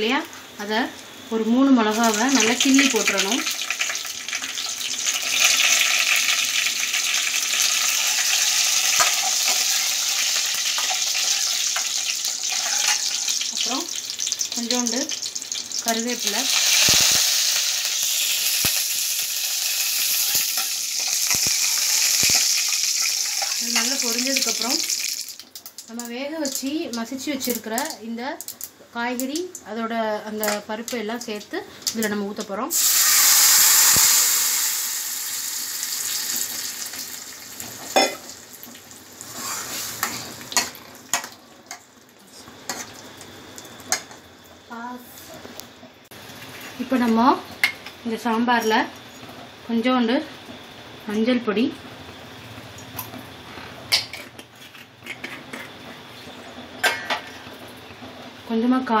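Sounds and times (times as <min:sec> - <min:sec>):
oil sizzling: 0:01.0 - 0:29.6, 0:30.2 - 0:45.2.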